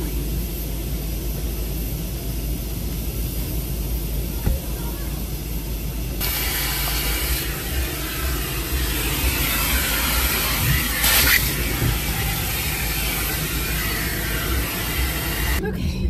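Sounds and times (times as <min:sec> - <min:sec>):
vacuum cleaner running: 0:05.8 - 0:15.7.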